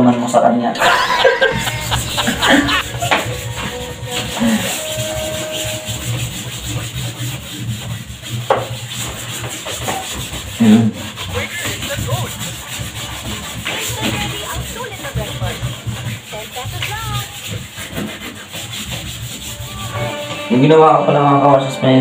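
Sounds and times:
cloth scrubbing wood: 0:00.8 - 0:20.7.

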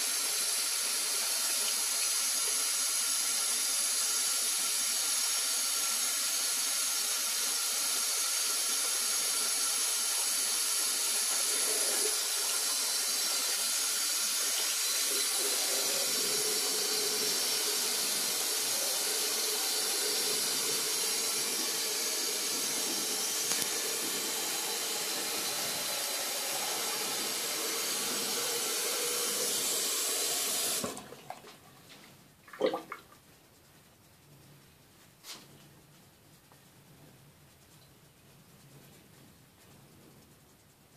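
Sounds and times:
tap water running and splashing: 0:00.0 - 0:31.7, 0:32.4 - 0:33.2.

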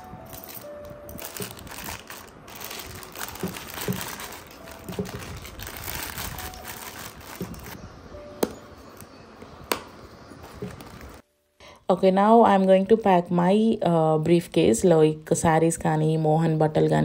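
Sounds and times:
rustling and crinkling: 0:00.0 - 0:07.8, 0:10.4 - 0:11.2
faint background music: 0:00.0 - 0:17.0.

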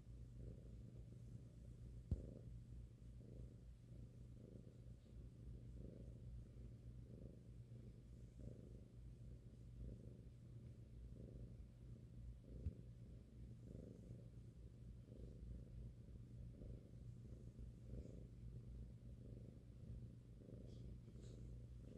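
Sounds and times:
cat purring: 0:00.0 - 0:21.9.

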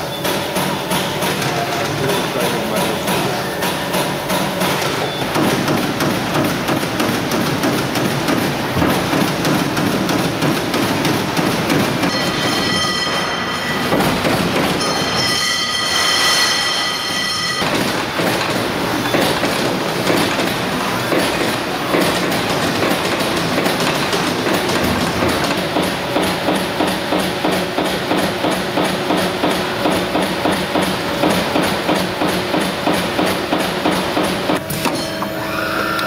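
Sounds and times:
high squeal: 0:35.0 - 0:36.0.

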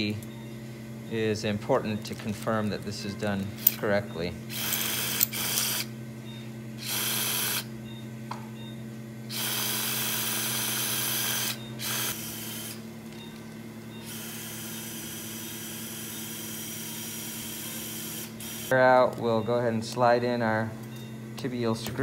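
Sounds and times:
power drill drilling bone: 0:04.5 - 0:05.9, 0:06.8 - 0:07.7, 0:09.3 - 0:12.8, 0:14.0 - 0:18.8.

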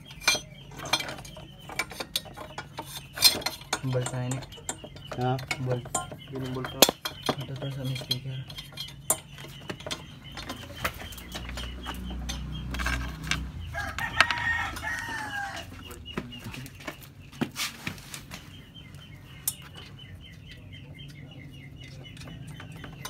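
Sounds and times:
tools clicking and knocking: 0:00.0 - 0:17.0
rooster crowing: 0:13.5 - 0:15.8.

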